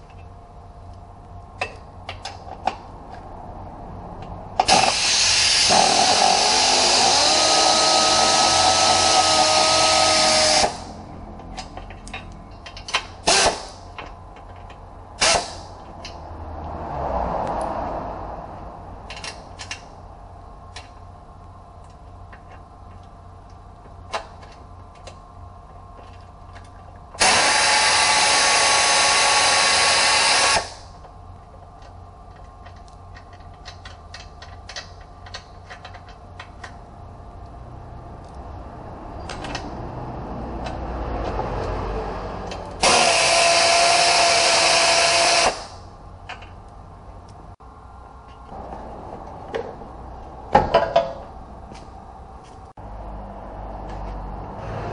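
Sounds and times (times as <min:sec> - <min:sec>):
pneumatic air ratchet running: 0:04.6 - 0:11.0, 0:13.2 - 0:13.9, 0:15.2 - 0:15.8, 0:27.2 - 0:31.0, 0:42.6 - 0:45.9
tool and bolts clinking: 0:11.4 - 0:14.8, 0:31.8 - 0:36.8, 0:50.5 - 0:52.6.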